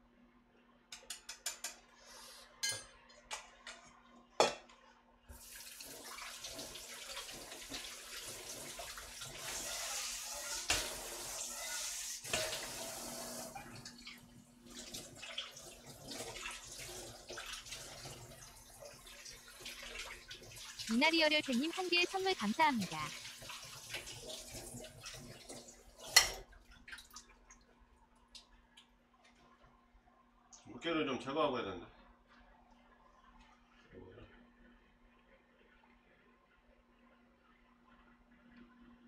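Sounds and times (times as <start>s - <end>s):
metal kitchenware clinking: 2.6s - 3.0s.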